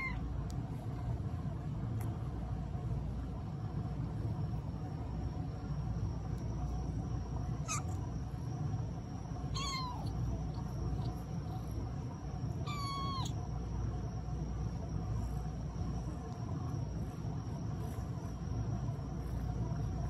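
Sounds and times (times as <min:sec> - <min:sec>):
low background rumble: 0:00.0 - 0:20.0
kitten meowing: 0:09.6 - 0:10.2, 0:12.6 - 0:13.4.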